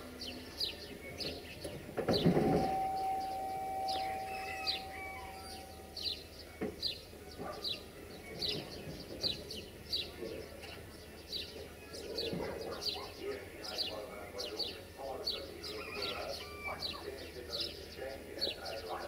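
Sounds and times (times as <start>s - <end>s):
bird chirping: 0.0s - 19.0s
train horn: 2.5s - 6.1s.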